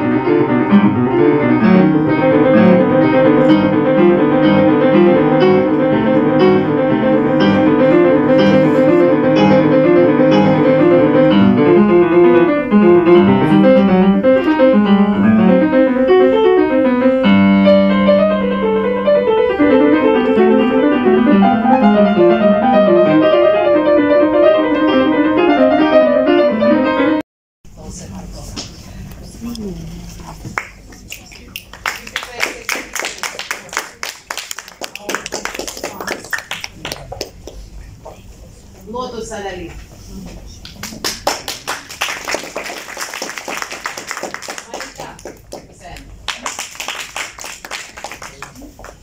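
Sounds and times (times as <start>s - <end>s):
fast solo piano: 0.0s - 27.2s.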